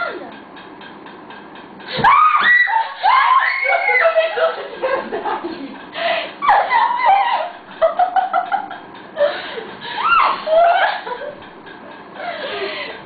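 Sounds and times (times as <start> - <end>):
children laughing and giggling: 2.7 - 13.0
child squealing: 10.0 - 10.4.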